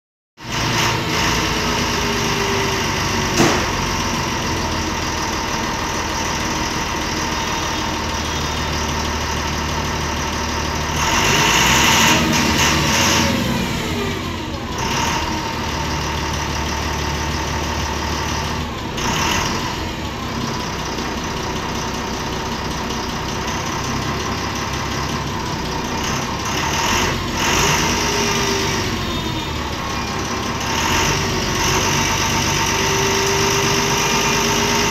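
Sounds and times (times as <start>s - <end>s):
diesel bus engine idling: 0.4s - 34.9s.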